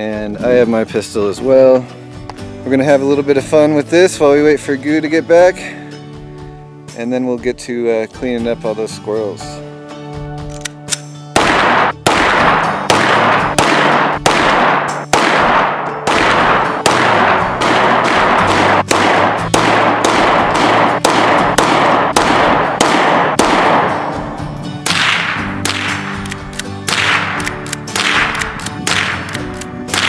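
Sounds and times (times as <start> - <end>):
quiet background music: 0.0 - 30.0
pistol and rifle gunshots: 11.3 - 30.0
gunshots with ringing echo: 11.4 - 29.3.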